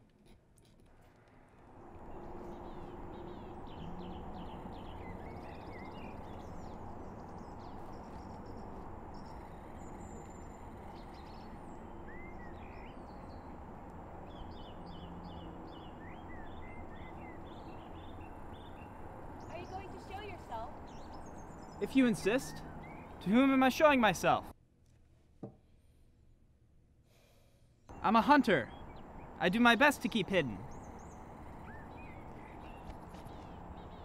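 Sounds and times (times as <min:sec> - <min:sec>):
low rushing background: 0:01.1 - 0:24.6
small birds chirping and trilling: 0:01.8 - 0:24.5, 0:27.9 - 0:34.0.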